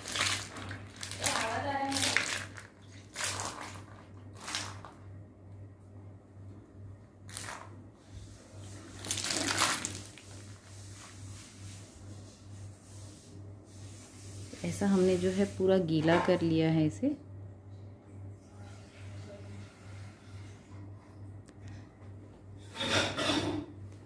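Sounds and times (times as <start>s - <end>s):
water splashing onto bedsheet: 0.0s - 5.0s, 8.9s - 11.2s.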